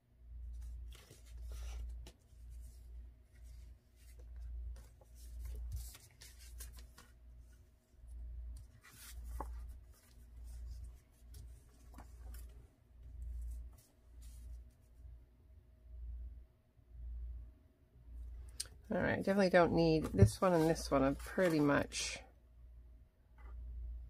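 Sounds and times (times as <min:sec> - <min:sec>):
paper rustling and sliding: 0:00.5 - 0:07.7, 0:08.5 - 0:14.7, 0:19.9 - 0:22.0.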